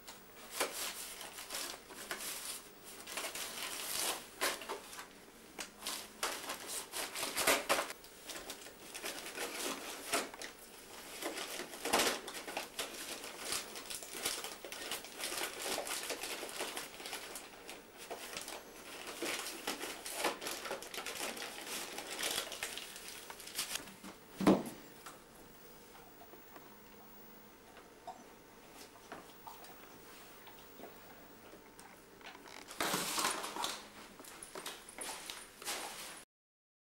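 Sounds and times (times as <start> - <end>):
wrapping paper crinkling: 0.4 - 23.8, 32.2 - 36.2.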